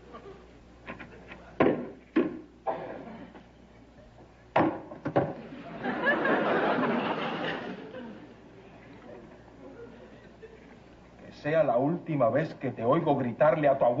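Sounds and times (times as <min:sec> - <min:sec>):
studio audience laughter: 0:05.4 - 0:08.4, 0:09.2 - 0:10.8.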